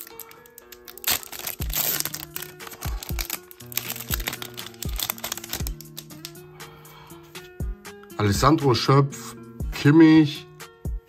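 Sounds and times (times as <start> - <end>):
foil wrapper crinkling: 0.0 - 6.4
background music: 0.0 - 11.0.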